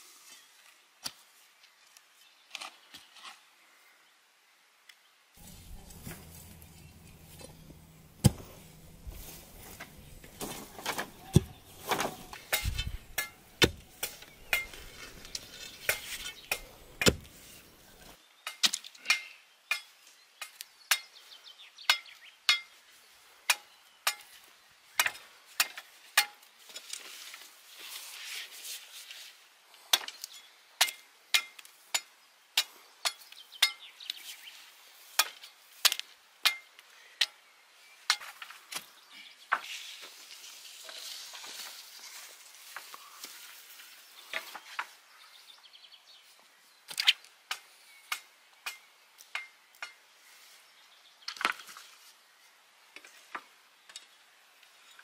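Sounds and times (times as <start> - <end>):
blade chopping wooden pole: 5.9 - 9.2, 9.8 - 14.8, 15.8 - 17.4.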